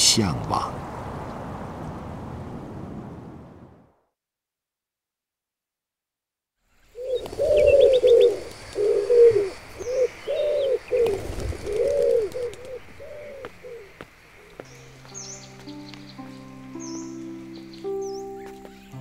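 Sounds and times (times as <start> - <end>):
pigeons cooing: 6.9 - 14.9.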